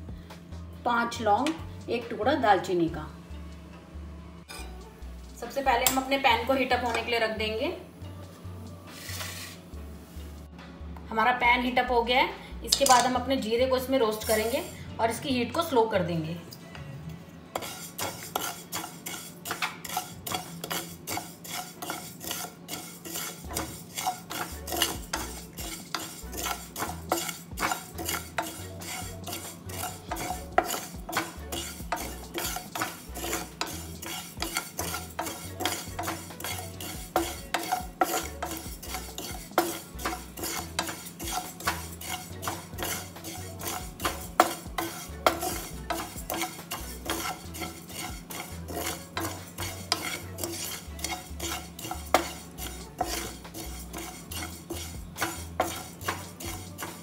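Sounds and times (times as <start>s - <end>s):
spatula scraping frying pan: 4.5s - 4.8s, 8.9s - 10.2s, 12.8s - 14.8s, 17.5s - 57.0s
seeds rattling against pan: 17.6s - 57.0s.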